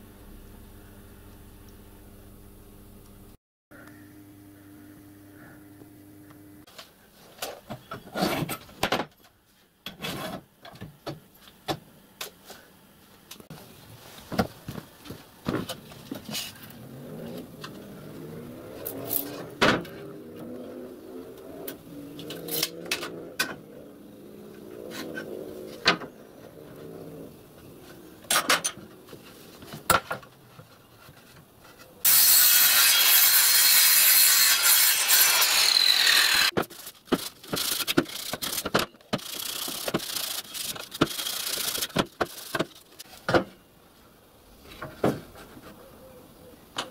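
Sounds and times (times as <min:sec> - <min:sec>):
mitre saw cutting board: 0:32.0 - 0:36.6.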